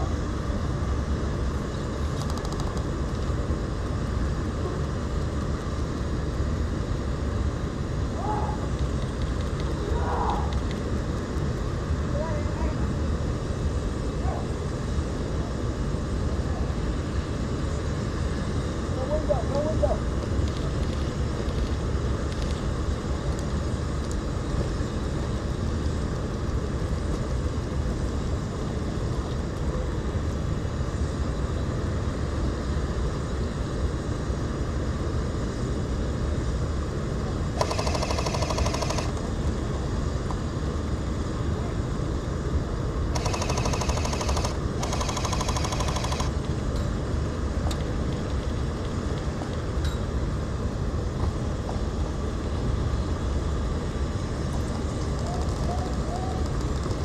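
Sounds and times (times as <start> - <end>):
airsoft gun full-auto bursts: 37.6 - 39.2, 43.1 - 46.4.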